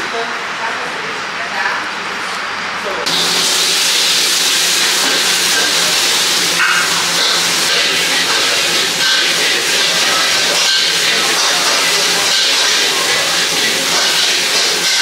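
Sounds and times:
food sizzling in a wok: 0:03.1 - 0:15.0.

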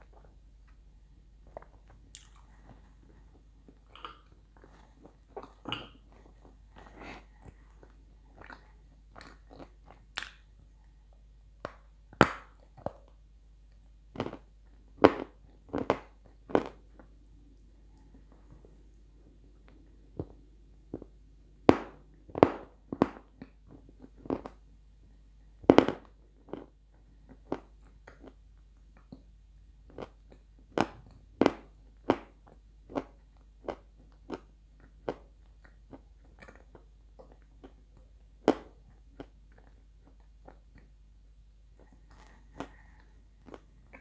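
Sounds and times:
person chewing and crunching: 0:01.4 - 0:10.6, 0:14.2 - 0:17.2, 0:25.7 - 0:28.4, 0:29.9 - 0:40.9, 0:41.8 - 0:44.0.

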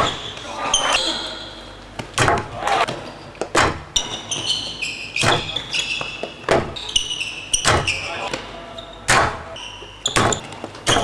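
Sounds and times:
rackets striking ball: 0:01.9 - 0:04.5, 0:05.2 - 0:06.8, 0:07.6 - 0:08.5, 0:09.1 - 0:11.0
shoes squeaking on court: 0:02.8 - 0:11.0.

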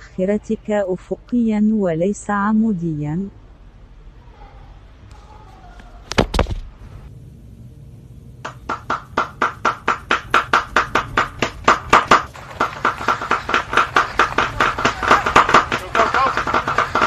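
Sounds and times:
rapid sharp tapping: 0:08.4 - 0:17.0.

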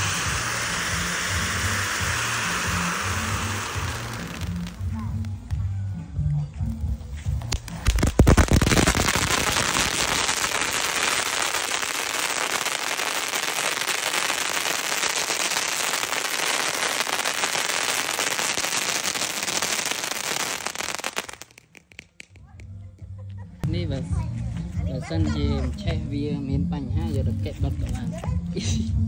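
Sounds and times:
hiss of spraying sparks: 0:00.0 - 0:05.3, 0:07.5 - 0:22.3
firework sharp pops: 0:00.0 - 0:05.6, 0:07.4 - 0:22.7.

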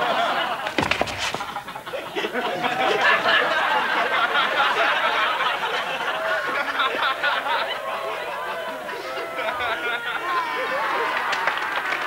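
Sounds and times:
people laughing and chattering: 0:00.0 - 0:12.0
sharp knocks: 0:00.7 - 0:01.7.

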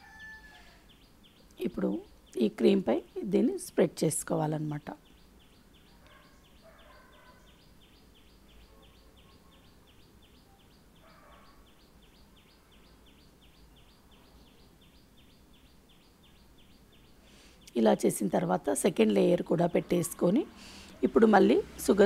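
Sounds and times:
faint high chirping: 0:05.0 - 0:17.8.

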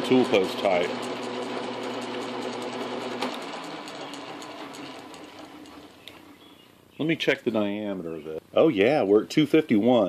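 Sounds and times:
metal lathe humming: 0:00.0 - 0:06.3.

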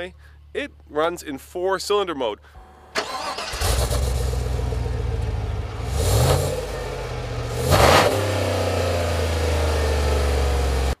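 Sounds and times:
car engine idling and revving: 0:03.0 - 0:11.0.

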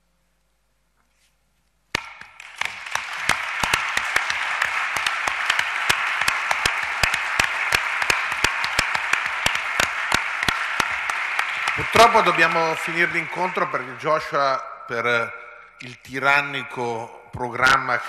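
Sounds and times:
audience applause: 0:02.1 - 0:14.4.

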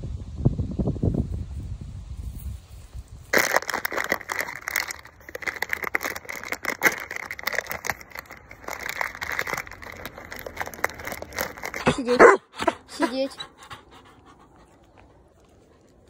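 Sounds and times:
plastic bag crinkling: 0:03.3 - 0:13.3.

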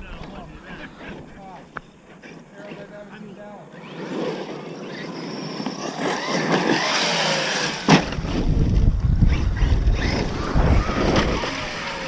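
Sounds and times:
electric rc truck motor whine: 0:03.7 - 0:12.0.

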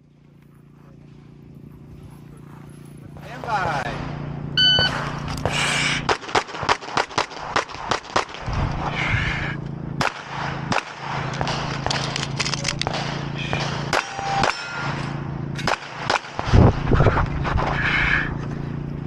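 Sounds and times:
steady low hum: 0:00.0 - 0:19.0
handgun shots: 0:06.1 - 0:08.4, 0:10.0 - 0:16.5.

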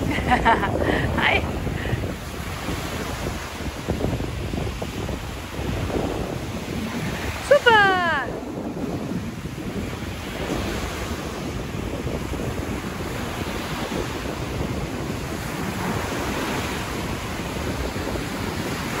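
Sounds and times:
surf washing onto beach: 0:00.0 - 0:19.0
wind rumbling on microphone: 0:00.0 - 0:19.0.

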